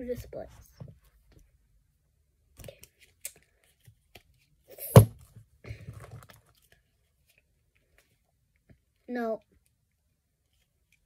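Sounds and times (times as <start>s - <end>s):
plastic dolls rustling and scraping: 2.7s - 9.0s.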